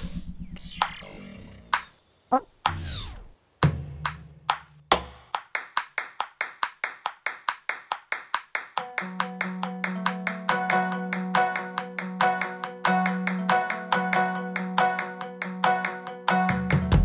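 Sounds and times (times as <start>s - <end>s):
cartoon thumps: 0.0s - 5.3s
cartoon falling glide: 0.2s - 3.3s.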